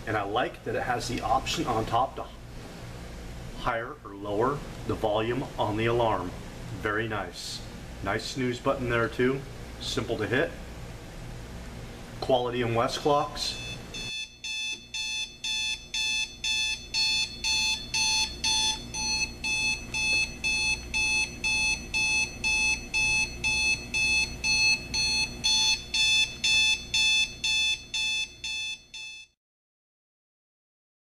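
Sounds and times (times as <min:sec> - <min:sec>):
alarm clock beeping: 0:13.5 - 0:29.4.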